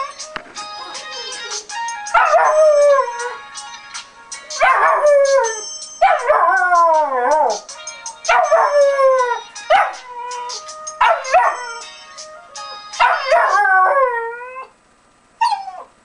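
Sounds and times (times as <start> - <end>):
puppy howling: 2.2 - 3.4, 4.6 - 7.6, 8.3 - 11.9, 13.0 - 14.7, 15.4 - 15.9.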